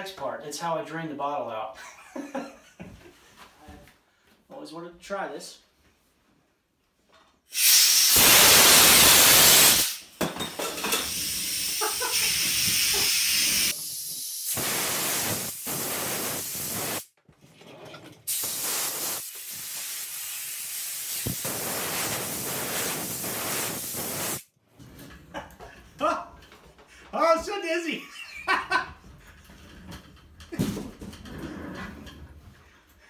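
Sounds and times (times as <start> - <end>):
high-pressure air hissing from valve: 7.5 - 10.2, 10.8 - 17.1, 18.3 - 24.5.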